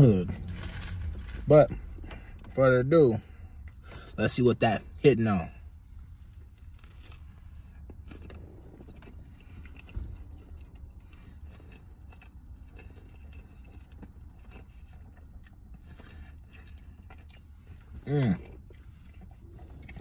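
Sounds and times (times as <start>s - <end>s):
low steady hum: 0.0s - 20.0s
person chewing food: 5.6s - 20.0s.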